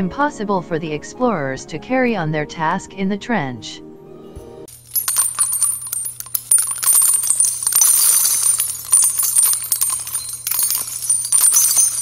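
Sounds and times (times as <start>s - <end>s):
jingling metallic clinks: 4.7s - 12.0s.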